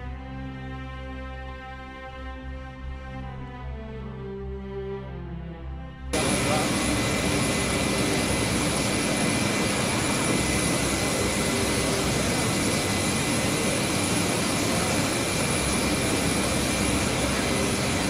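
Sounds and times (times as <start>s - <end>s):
jet engines running: 6.2s - 18.0s.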